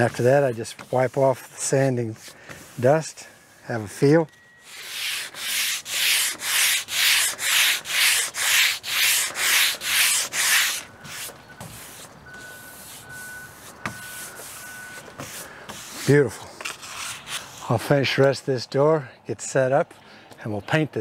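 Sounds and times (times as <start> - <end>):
sandpaper rubbing on metal door: 4.7 - 17.8.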